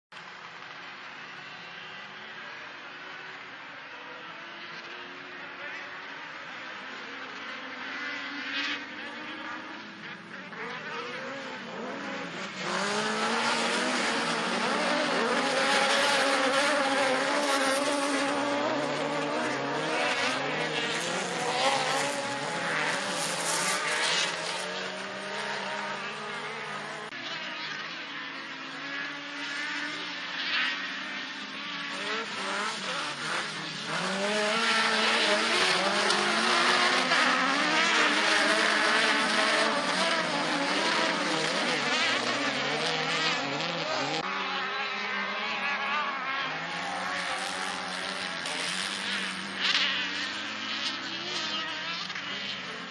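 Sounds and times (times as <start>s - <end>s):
racing car engines revving: 0.2s - 52.9s.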